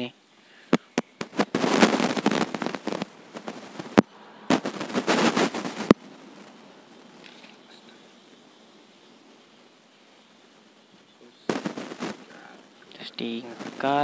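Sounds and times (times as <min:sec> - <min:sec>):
plastic tape crackling: 0:00.7 - 0:07.8, 0:11.5 - 0:14.0.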